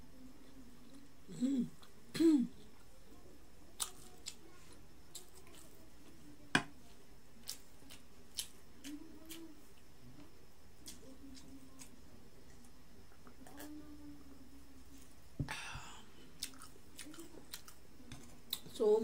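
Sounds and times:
person humming mm: 0:01.3 - 0:02.6.

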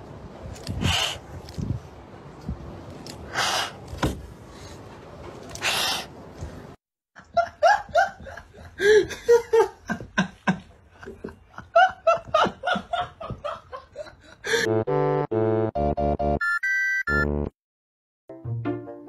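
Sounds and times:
person laughing hard: 0:07.2 - 0:14.7.

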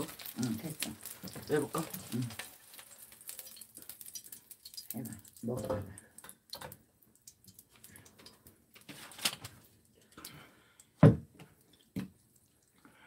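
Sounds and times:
batter stirred with wooden spatula: 0:00.0 - 0:05.0.

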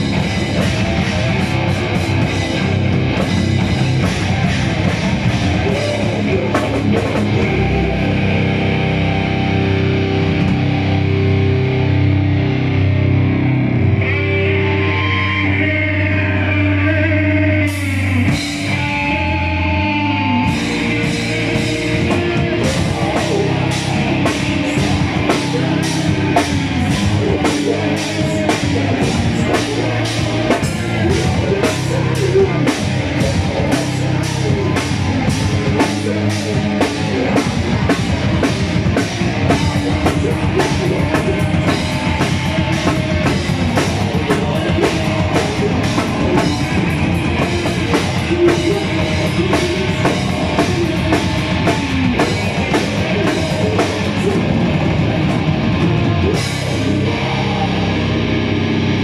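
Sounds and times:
bass guitar: 0:00.0 - 0:59.0
distorted electric guitar: 0:00.0 - 0:59.0
shouted vocals: 0:14.0 - 0:59.0.

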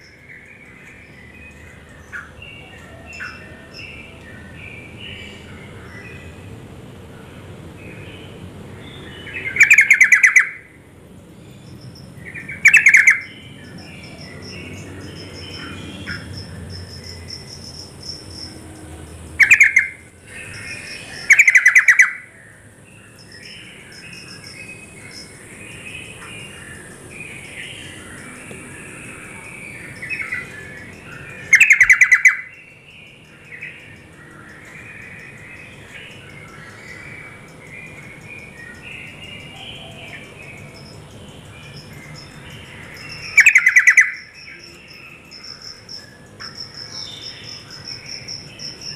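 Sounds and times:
steady high hiss: 0:03.1 - 0:48.9
soft bird chattering calls: 0:19.4 - 0:22.3, 0:23.3 - 0:32.5, 0:33.4 - 0:48.9.

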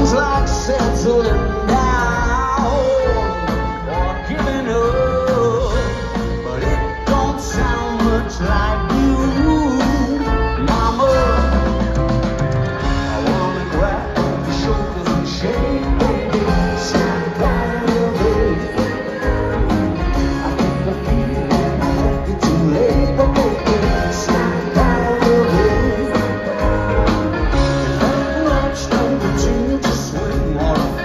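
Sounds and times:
man singing: 0:00.0 - 0:12.1, 0:12.8 - 0:31.0
live rock band: 0:00.0 - 0:31.0.

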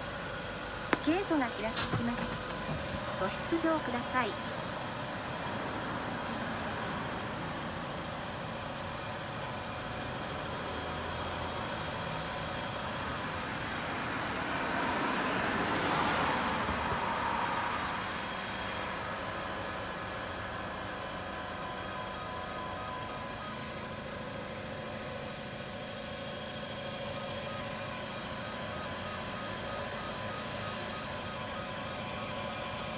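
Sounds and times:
car engine idling: 0:00.0 - 0:32.9
passing vehicle noise: 0:12.8 - 0:24.0.

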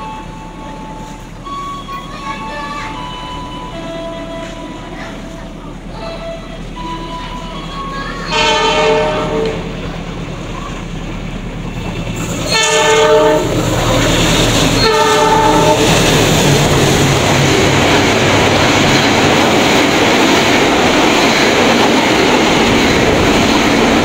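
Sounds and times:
train passing at speed: 0:00.0 - 0:24.0
wheels clattering on rails: 0:00.5 - 0:24.0
train horn blowing: 0:08.3 - 0:09.8, 0:12.4 - 0:13.8, 0:14.8 - 0:16.2.

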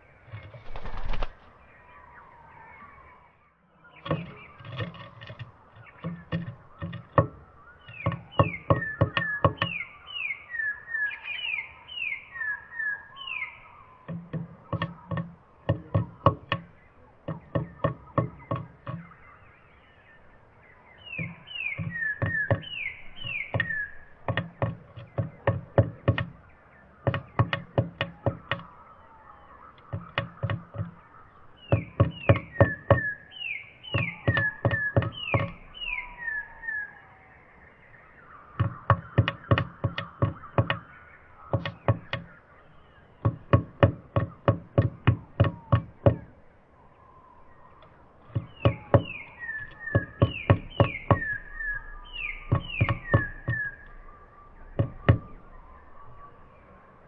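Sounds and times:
high down-slurred bird calls: 0:00.0 - 0:57.0
bird pecking on wooden box: 0:00.3 - 0:01.4, 0:04.0 - 0:09.8, 0:14.1 - 0:19.2, 0:21.2 - 0:28.8, 0:29.8 - 0:33.2, 0:33.9 - 0:35.7, 0:38.5 - 0:42.4, 0:43.2 - 0:46.3, 0:48.2 - 0:51.5, 0:52.2 - 0:54.0, 0:54.6 - 0:55.4.

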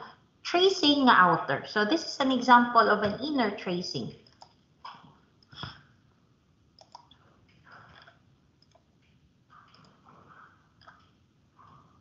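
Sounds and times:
computer mouse clicks: 0:06.8 - 0:10.0.

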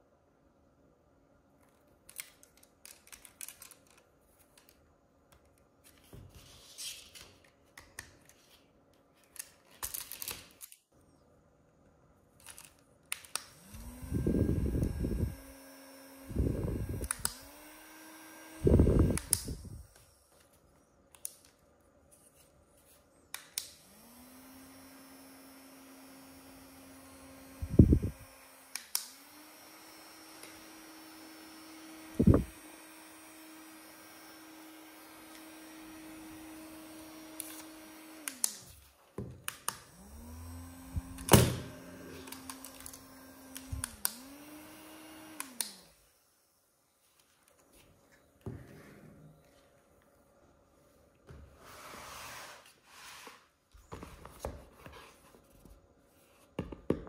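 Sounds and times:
small fan motor whirring: 0:13.4 - 0:20.3, 0:23.7 - 0:38.8, 0:39.5 - 0:46.7.

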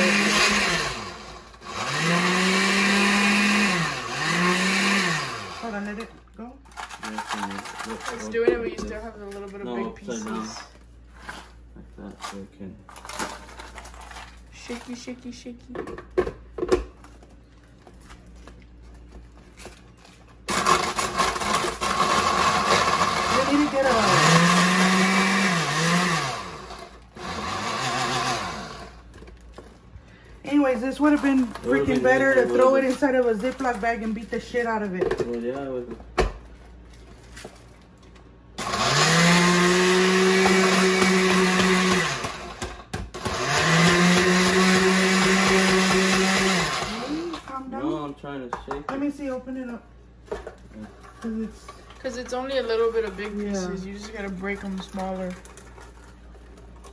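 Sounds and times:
blender grinding: 0:00.0 - 0:08.6, 0:12.9 - 0:14.9, 0:20.4 - 0:29.4, 0:30.5 - 0:34.6, 0:38.5 - 0:48.0.

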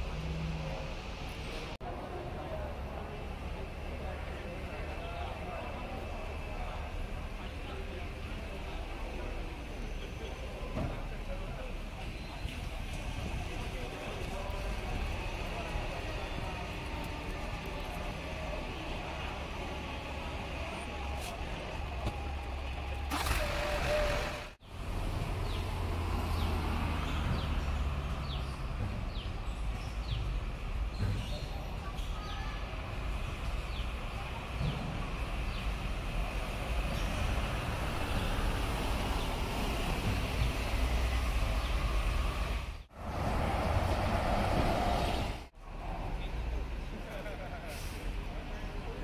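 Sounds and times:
bus engine rumble: 0:00.0 - 0:49.0
air brake hiss: 0:47.7 - 0:48.1.

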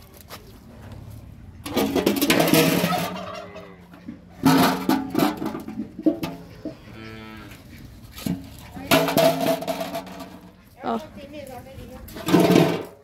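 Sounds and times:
fowl calling loudly: 0:02.5 - 0:04.7.

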